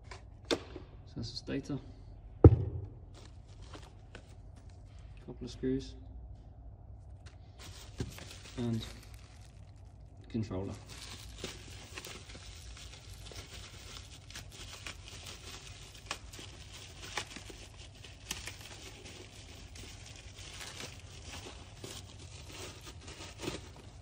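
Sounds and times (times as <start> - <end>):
plastic bag crinkling: 3.0 - 5.0, 7.1 - 24.0.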